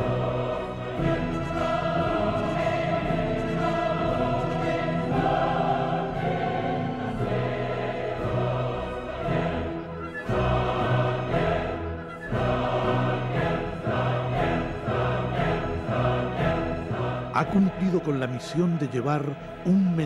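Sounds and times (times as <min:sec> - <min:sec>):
choir singing held chords: 0:00.0 - 0:20.0.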